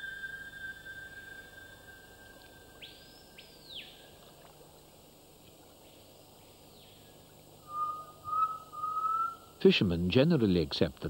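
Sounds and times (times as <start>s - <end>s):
low even hiss: 0.0s - 11.0s.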